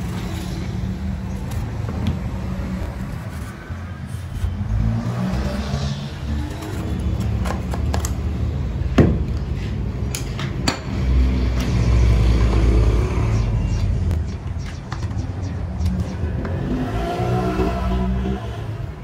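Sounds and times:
steady low drone: 11.0 - 19.0.

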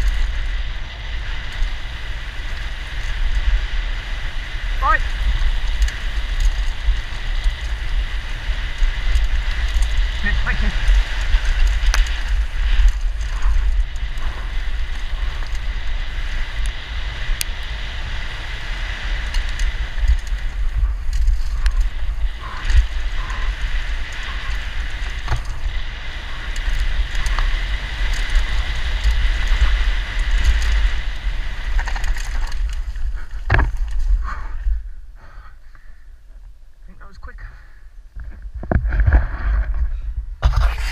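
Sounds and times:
wind buffeting microphone: 0.0 - 36.4
bike tyres rolling on gravel: 0.0 - 40.9
stones and bike clicking: 0.0 - 40.9.

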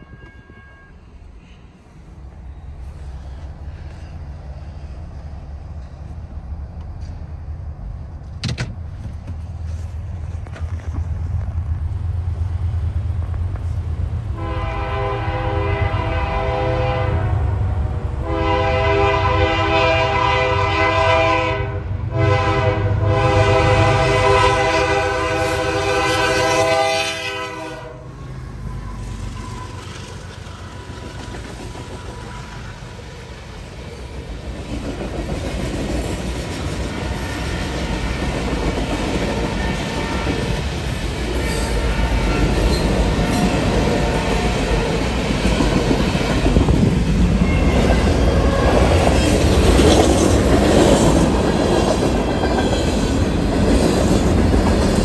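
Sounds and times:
train horn blasts: 0.0 - 1.2, 14.3 - 28.2, 39.4 - 40.6, 47.4 - 49.2.

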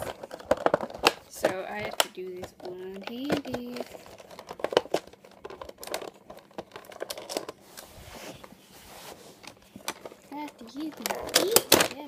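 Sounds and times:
cardboard box crinkling: 0.0 - 7.6.

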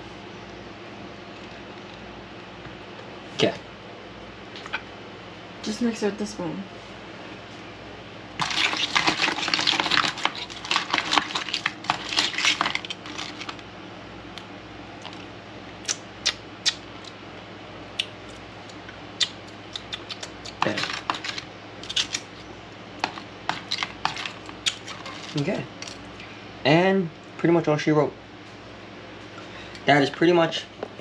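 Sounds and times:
crab shells clicking in a bowl: 8.4 - 13.6, 19.2 - 22.3, 23.0 - 26.0.

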